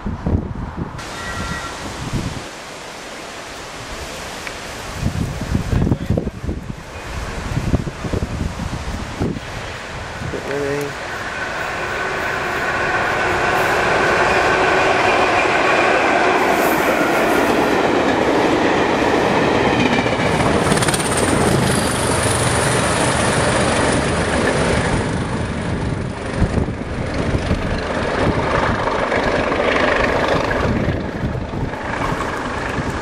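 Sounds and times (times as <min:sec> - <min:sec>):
diesel train approaching: 0:00.0 - 0:02.1, 0:06.5 - 0:33.0
high wheel squeal: 0:01.0 - 0:02.0
train wheels clattering on rails: 0:10.4 - 0:33.0.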